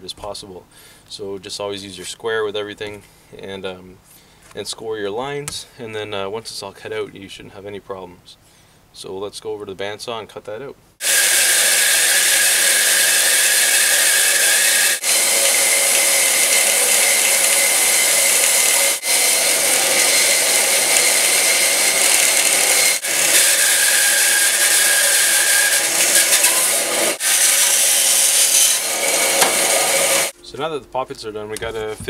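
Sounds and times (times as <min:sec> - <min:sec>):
bandsaw cutting wood: 0:11.0 - 0:30.4.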